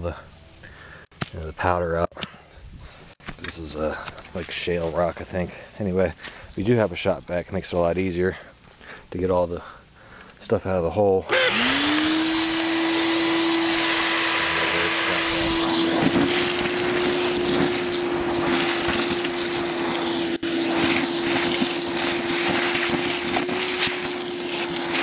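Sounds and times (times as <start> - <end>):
shop vac running: 11.2 - 25.0
vacuum sucking rock powder: 11.3 - 25.0.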